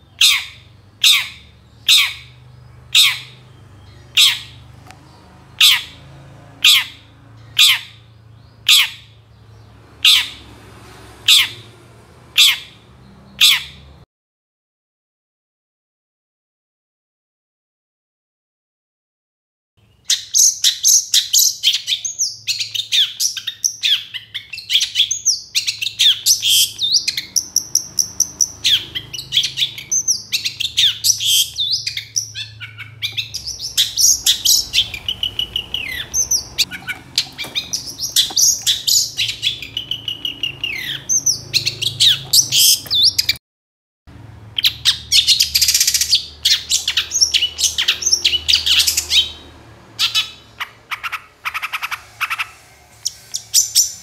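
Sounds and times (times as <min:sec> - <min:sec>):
bird singing sharp chattering notes: 0:19.9 - 0:43.4.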